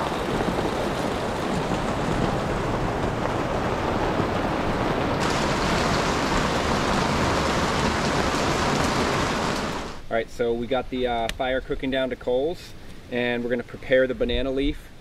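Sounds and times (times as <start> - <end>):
heavy rain on leaves and ground: 0.0 - 10.1.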